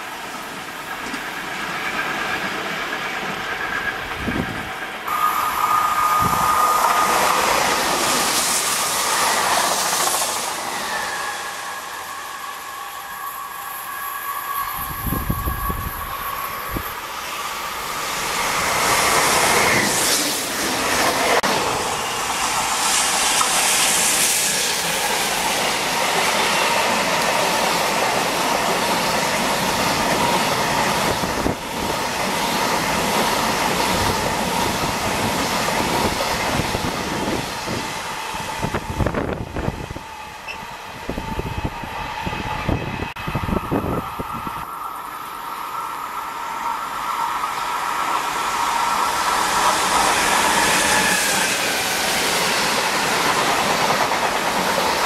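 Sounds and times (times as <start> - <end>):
wheels clickety-clack on rail: 0.0 - 10.7, 18.2 - 39.9, 49.2 - 55.0
freight train passing: 0.0 - 55.0.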